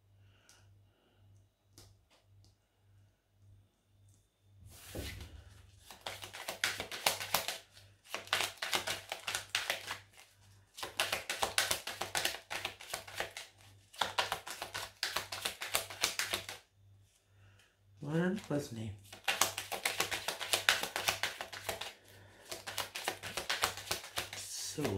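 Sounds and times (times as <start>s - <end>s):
cards being shuffled by hand: 4.8s - 16.7s, 18.1s - 24.9s.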